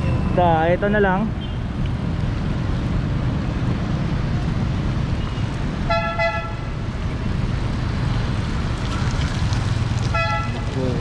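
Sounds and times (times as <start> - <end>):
street traffic: 0.0 - 11.0
vehicle horn toot: 10.1 - 10.6.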